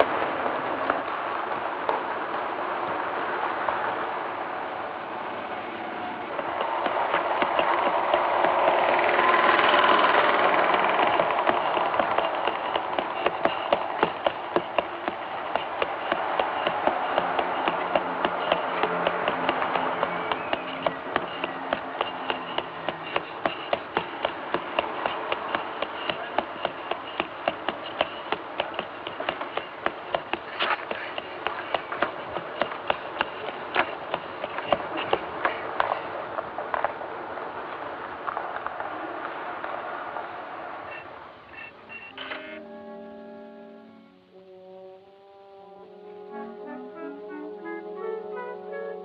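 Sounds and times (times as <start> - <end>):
steady hiss: 0.0 - 42.8
child running on pavement: 6.0 - 37.1.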